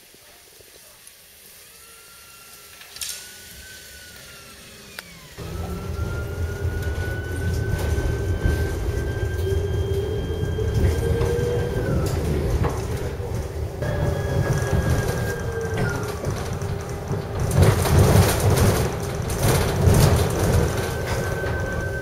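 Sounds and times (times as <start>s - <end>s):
tram traction motors whining: 1.0s - 22.0s
wheels rumbling on rail: 5.0s - 22.0s.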